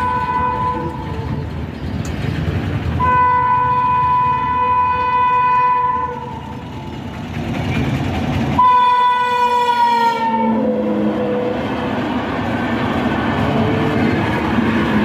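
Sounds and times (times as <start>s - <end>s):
train horn blasts: 0.0s - 1.5s, 3.0s - 6.6s, 8.6s - 11.7s
train wheels rumbling and clattering: 0.0s - 15.0s.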